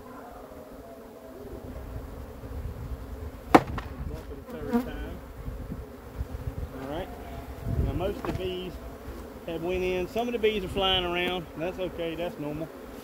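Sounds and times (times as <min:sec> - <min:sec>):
honeybees buzzing: 0:00.0 - 0:13.0
wooden box knocking on hive: 0:03.5 - 0:04.2, 0:08.1 - 0:08.5.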